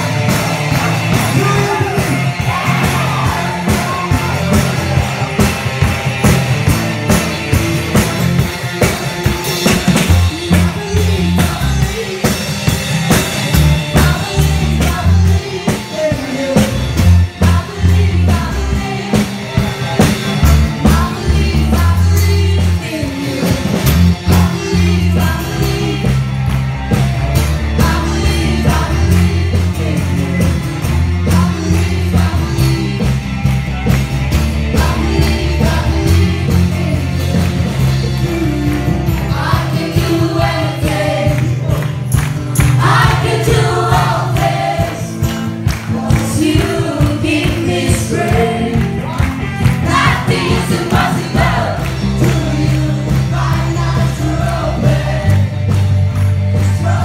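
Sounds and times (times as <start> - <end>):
driving drum kit: 0.0 - 57.0
electric guitar: 0.0 - 57.0
rock band music: 0.0 - 57.0
person singing: 45.9 - 49.2.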